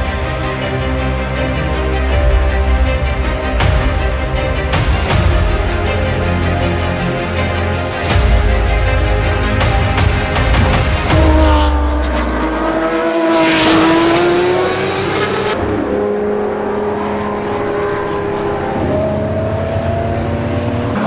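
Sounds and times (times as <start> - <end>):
race car engines revving: 10.0 - 21.0
car passing by: 11.1 - 21.0.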